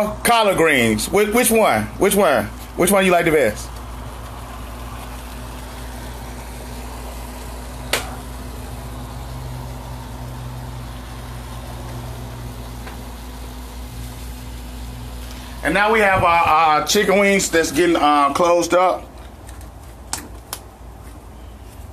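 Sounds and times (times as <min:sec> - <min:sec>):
motor humming: 0:01.4 - 0:18.0.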